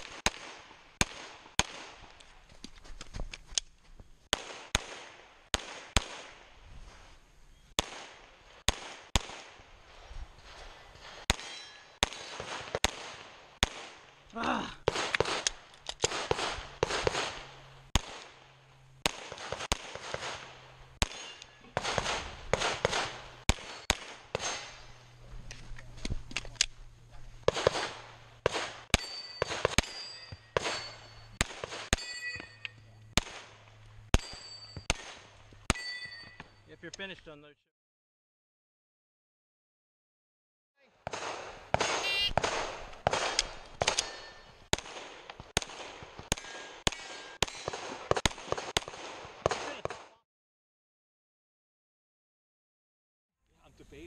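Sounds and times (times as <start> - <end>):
pistol shots with echo: 4.3 - 6.4, 7.8 - 9.6, 11.3 - 14.1, 14.8 - 18.4, 19.0 - 24.7, 27.5 - 32.5, 41.0 - 50.2
metallic ring of steel targets: 11.0 - 12.4, 21.0 - 21.8, 23.5 - 25.0, 28.9 - 33.0, 34.1 - 36.8, 43.3 - 44.7, 46.5 - 47.8.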